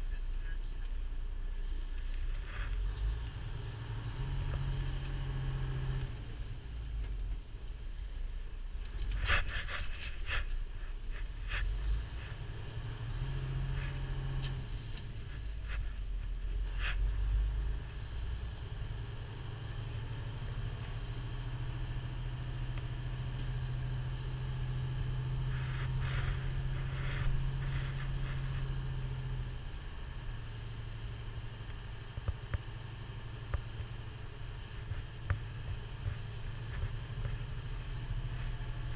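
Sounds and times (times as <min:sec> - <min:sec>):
diesel engine hum: 0:00.0 - 0:38.9
sharp clicks and rattles: 0:07.0 - 0:12.4.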